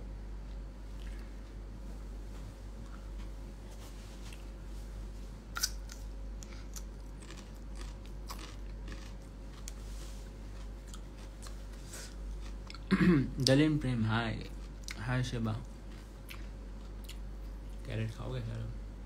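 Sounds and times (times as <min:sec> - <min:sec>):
carrot crunching: 0:05.5 - 0:13.6.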